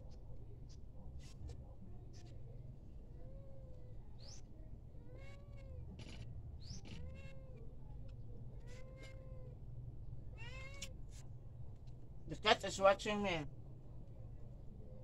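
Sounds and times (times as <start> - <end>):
cat meowing: 5.0 - 6.2, 6.8 - 7.6, 8.5 - 9.6, 10.4 - 11.0.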